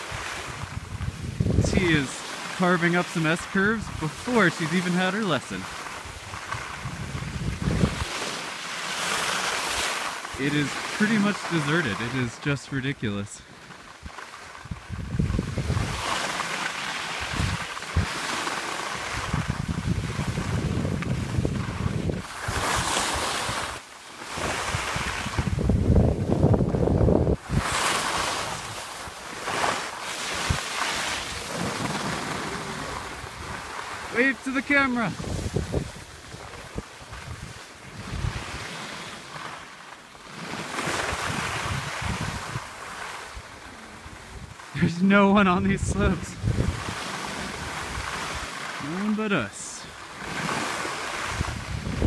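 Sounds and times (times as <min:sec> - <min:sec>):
wind buffeting microphone: 0:00.0 - 0:02.0, 0:05.8 - 0:08.4, 0:14.0 - 0:16.4, 0:17.2 - 0:18.3, 0:18.9 - 0:29.1, 0:35.1 - 0:38.8, 0:40.8 - 0:44.9, 0:45.6 - 0:48.6, 0:50.2 - 0:52.0
skis hissing over snow: 0:00.0 - 0:25.5, 0:27.4 - 0:52.0.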